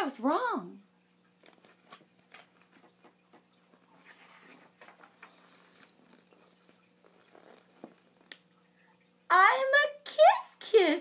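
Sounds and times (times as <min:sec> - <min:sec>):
low steady hum: 0:00.0 - 0:11.0
book page turning: 0:01.4 - 0:03.1, 0:03.8 - 0:08.3.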